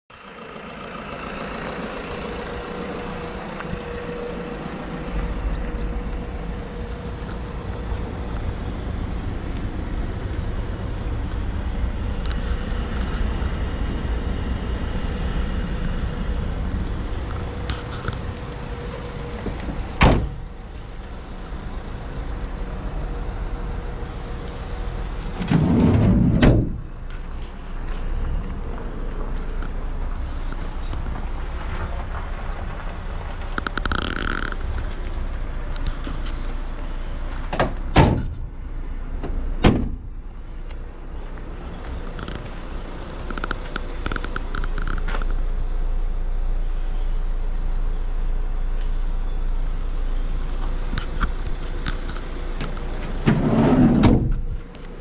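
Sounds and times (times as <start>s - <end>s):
low steady rumble: 0.1s - 55.0s
van door thud: 19.7s - 20.4s, 25.4s - 26.9s, 37.5s - 38.5s, 39.2s - 40.1s, 53.2s - 54.6s
van door click: 20.0s - 20.4s, 37.5s - 38.5s, 39.2s - 40.1s.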